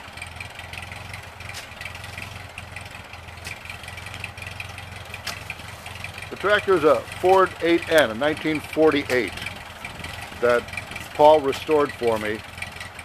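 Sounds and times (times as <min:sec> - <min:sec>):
tractor engine idling: 0:00.0 - 0:13.0
shovel knocks digging: 0:05.2 - 0:05.6.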